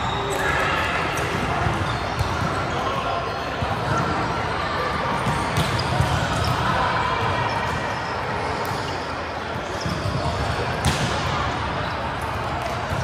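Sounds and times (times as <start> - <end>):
voices and player movement: 0.0 - 13.0
volleyball impacts: 9.8 - 11.3.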